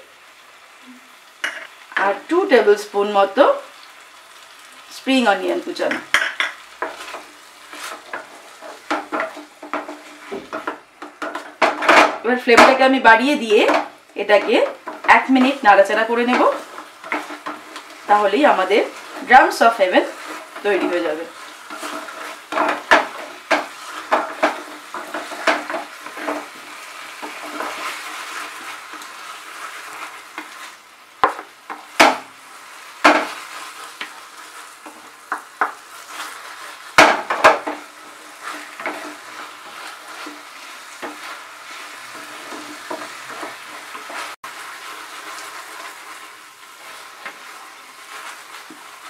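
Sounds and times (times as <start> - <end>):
chicken sizzling in a frying pan: 0.0 - 49.0
wooden spatula knocking on pan: 8.9 - 12.8, 22.5 - 26.4, 31.2 - 32.3, 33.0 - 33.4, 34.8 - 35.8, 37.0 - 37.8.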